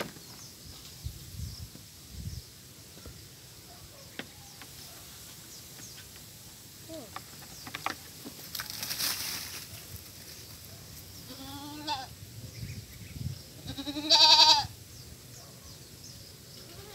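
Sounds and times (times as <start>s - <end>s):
goat bleating: 11.3s - 12.1s, 13.6s - 14.7s, 16.7s - 16.9s.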